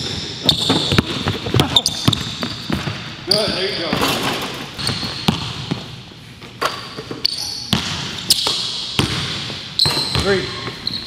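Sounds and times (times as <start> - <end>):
basketball bouncing on wooden floor: 0.0 - 3.0, 4.8 - 5.9, 7.7 - 10.8
sneaker squeaks: 0.0 - 5.9, 6.6 - 11.0.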